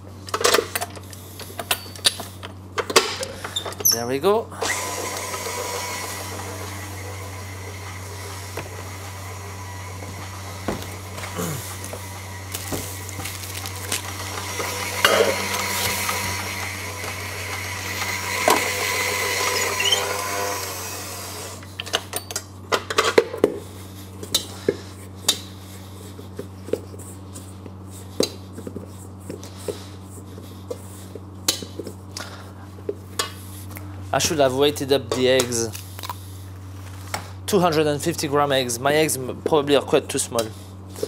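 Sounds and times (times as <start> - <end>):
stand mixer running: 4.6 - 21.8.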